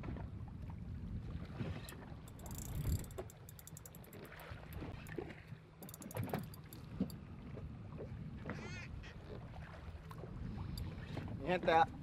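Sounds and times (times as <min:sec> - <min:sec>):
low rumble of boat and water: 0:00.0 - 0:12.0
wind: 0:00.0 - 0:12.0
fishing reel clicks and knocks: 0:01.9 - 0:04.4, 0:05.8 - 0:07.2.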